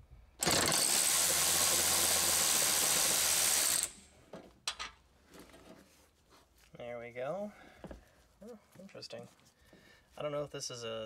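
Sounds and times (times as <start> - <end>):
electric ratchet running: 0.4 - 4.1.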